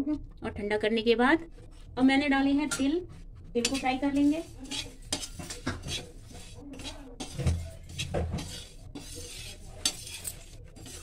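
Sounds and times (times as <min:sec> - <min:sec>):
spoon scraping seeds in metal pan: 0:03.6 - 0:11.0.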